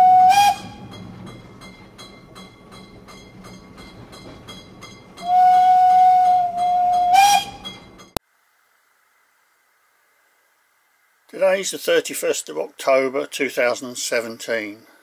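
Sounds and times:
model locomotive steam whistle: 0.0s - 1.0s, 5.2s - 7.9s.

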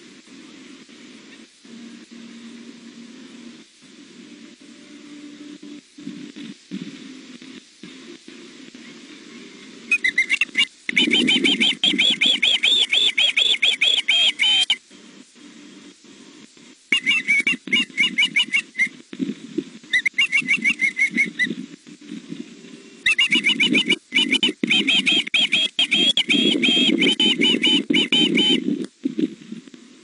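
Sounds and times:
young osprey high chirps: 9.9s - 14.8s, 16.9s - 19.0s, 19.9s - 21.6s, 23.1s - 28.6s.

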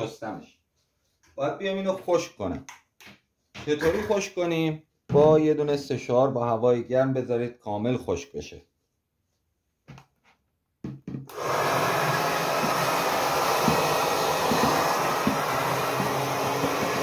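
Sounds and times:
hair dryer running: 11.3s - 17.0s.

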